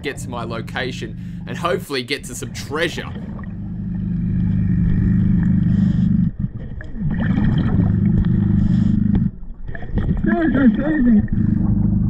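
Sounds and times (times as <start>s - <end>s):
bubbles rumbling: 0.0s - 12.0s
diver breathing through regulator: 1.1s - 1.5s, 3.8s - 6.6s, 8.1s - 9.4s.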